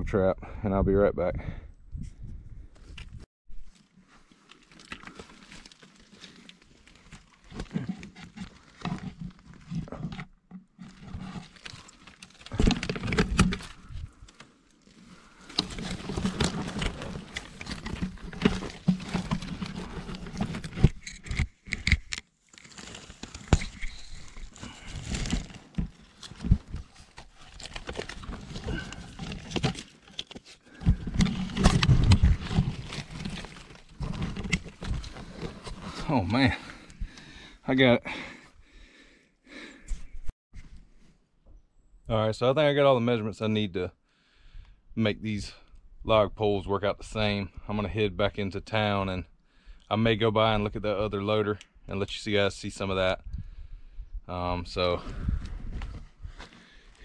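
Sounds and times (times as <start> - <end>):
leaves and sticks rustling: 10.8 - 21.4.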